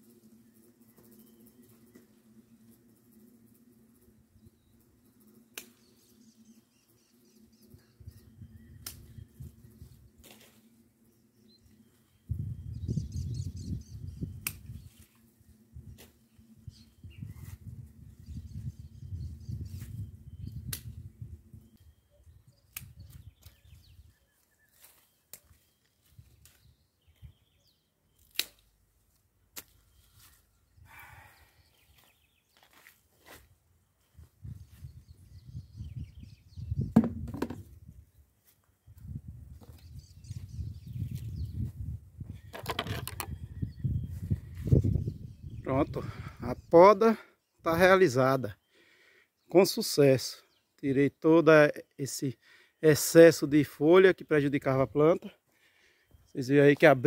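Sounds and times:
pruning shears snipping: 0:05.5 - 0:05.9, 0:08.8 - 0:09.1, 0:14.4 - 0:15.2, 0:22.7 - 0:23.6, 0:28.2 - 0:28.7
twigs snapping: 0:05.5 - 0:05.9, 0:08.8 - 0:09.1, 0:14.4 - 0:15.2, 0:20.7 - 0:21.0, 0:22.7 - 0:23.6, 0:24.8 - 0:25.6, 0:26.4 - 0:26.6, 0:28.2 - 0:30.3
leaves rustling: 0:08.9 - 0:12.2, 0:14.5 - 0:18.2, 0:22.6 - 0:26.8, 0:28.2 - 0:31.2.

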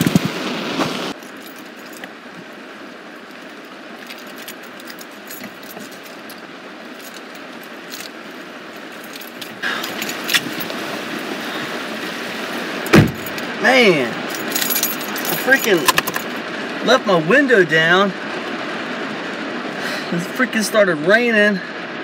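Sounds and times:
rain on a car: 0:00.0 - 0:22.0
keys jangling: 0:01.2 - 0:02.2, 0:04.0 - 0:08.2, 0:08.9 - 0:10.7, 0:13.0 - 0:13.5, 0:14.3 - 0:16.4.

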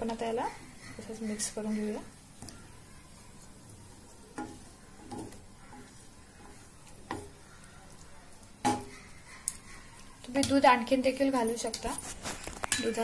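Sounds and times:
low sizzle: 0:00.0 - 0:13.0
spatula stirring in a pan: 0:00.0 - 0:13.0
spatula scraping a pan: 0:00.1 - 0:10.2.

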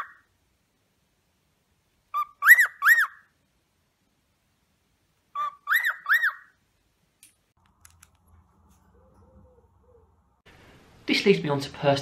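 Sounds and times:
cockatiel whistling: 0:02.2 - 0:03.2, 0:05.4 - 0:06.5.

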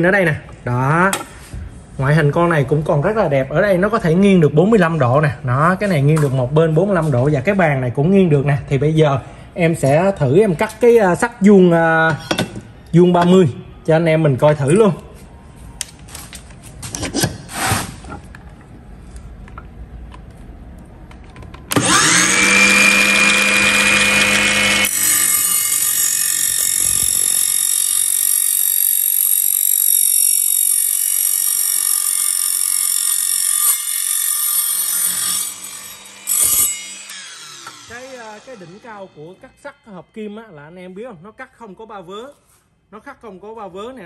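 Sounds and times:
saw motor spinning up: 0:21.7 - 0:39.2
saw cutting steel with whine: 0:21.7 - 0:40.8.

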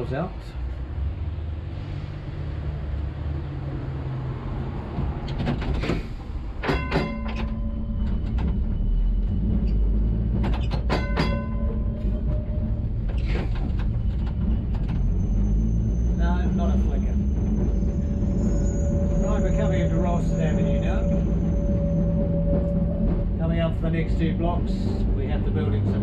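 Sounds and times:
electric tram running hum: 0:00.0 - 0:26.0
tram warning gong: 0:06.4 - 0:26.0.

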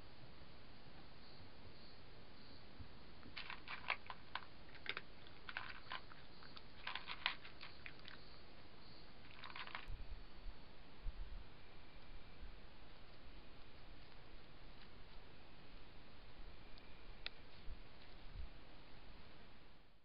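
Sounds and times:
cat crunching dry food: 0:03.2 - 0:08.2, 0:09.2 - 0:09.9.

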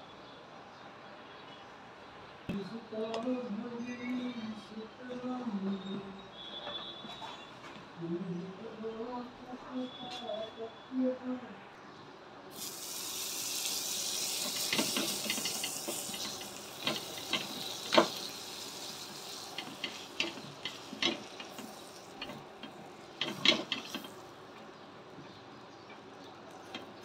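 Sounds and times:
butter sizzling on a griddle: 0:12.5 - 0:24.3.

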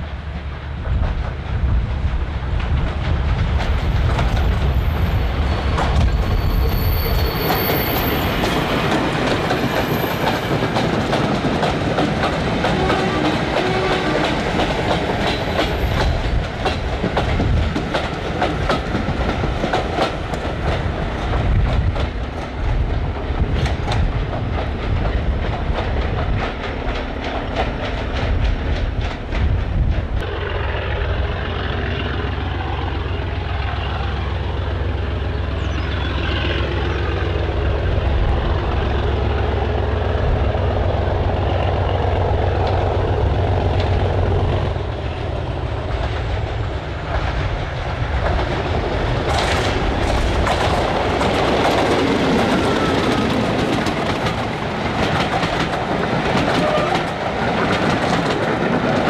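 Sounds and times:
diesel locomotive engine rumble: 0:00.0 - 0:59.0
wheels clattering over rail joints: 0:45.8 - 0:59.0.

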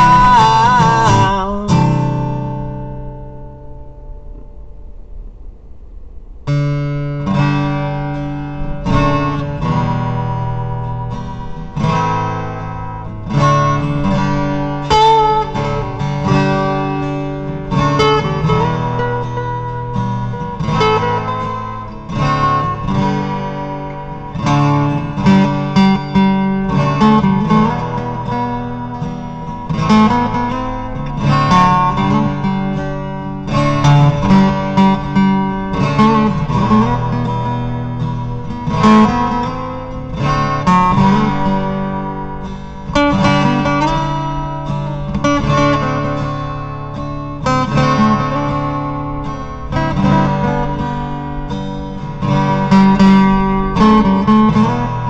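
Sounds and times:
acoustic guitar music: 0:00.0 - 0:55.0.

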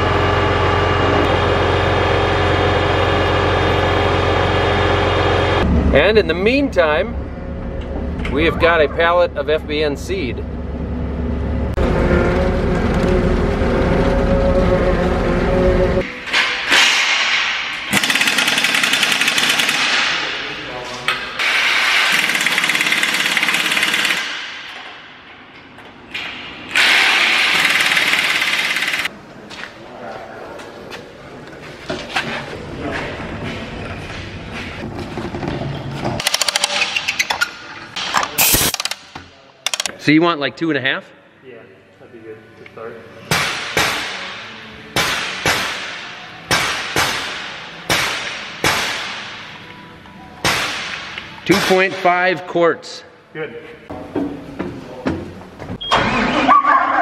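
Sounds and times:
impact tool hammering: 0:43.3 - 0:49.4
loud sharp bangs echoing: 0:43.3 - 0:49.5.

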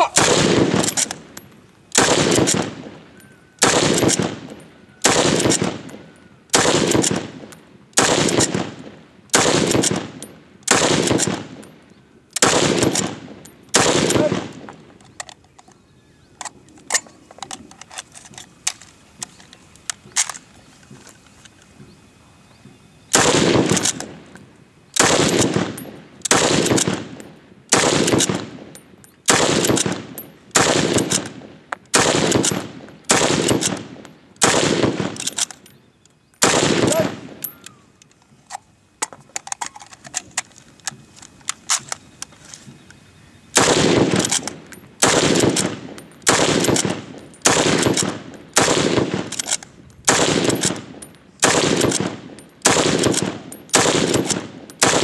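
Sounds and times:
rifle shots: 0:00.0 - 0:11.7, 0:12.4 - 0:14.8, 0:23.1 - 0:24.2, 0:25.0 - 0:35.5, 0:36.4 - 0:37.5, 0:43.6 - 0:55.0
rifle bolt clicking: 0:44.2 - 0:52.1.

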